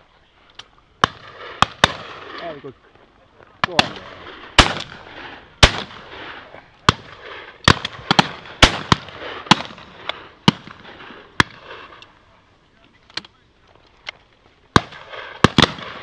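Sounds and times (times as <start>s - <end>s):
shotgun shots: 1.0s - 2.6s, 3.6s - 12.0s, 14.8s - 16.0s.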